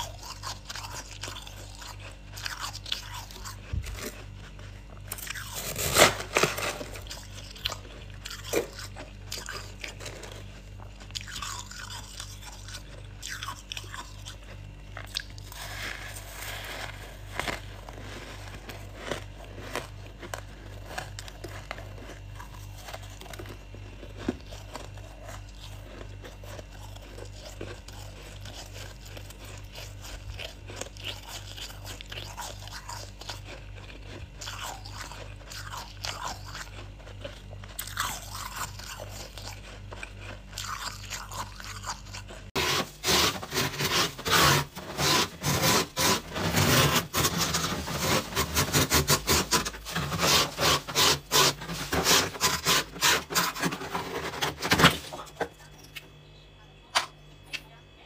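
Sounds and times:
low steady hum: 0.0s - 58.0s
plastic scraper scraping frost: 5.1s - 8.8s, 15.3s - 27.2s, 42.5s - 55.5s.

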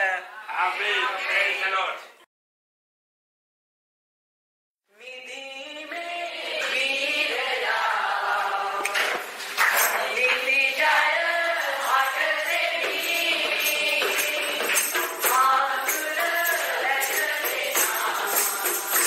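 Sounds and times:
voices singing together: 5.0s - 19.0s
tambourine jingling: 9.6s - 19.0s.

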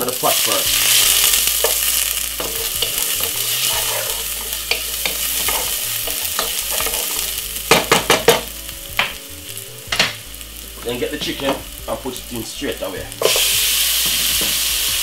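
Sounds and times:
garlic and onion sizzling in oil: 0.0s - 15.0s
wooden spoon knocking pot: 7.7s - 9.2s.

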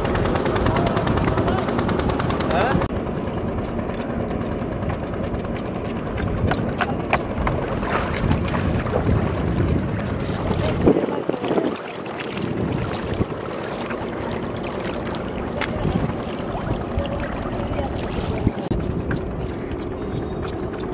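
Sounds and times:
steady low rumble: 0.0s - 20.9s
water splashing and dripping: 4.9s - 19.6s.

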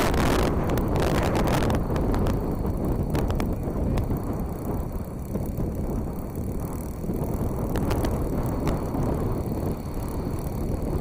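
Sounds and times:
wind buffeting microphone: 0.0s - 11.0s
faint ticks: 6.7s - 10.2s.

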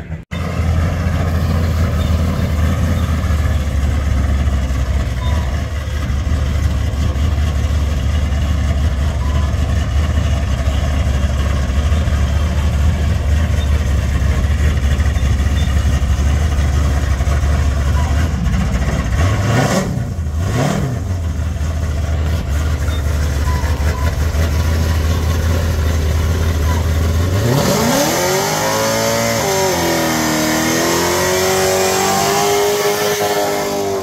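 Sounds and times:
truck engine idling and revving: 0.0s - 34.0s.

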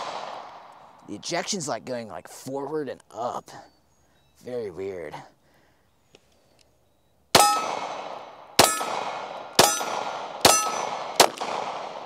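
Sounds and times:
pistol shots: 0.0s - 1.0s, 7.3s - 12.0s.

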